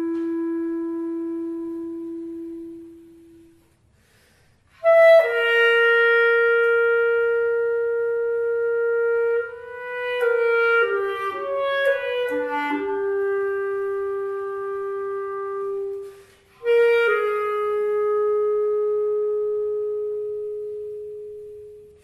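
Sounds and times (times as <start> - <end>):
solo clarinet melody: 0.0 - 22.0
breath: 3.9 - 4.8, 16.0 - 16.6.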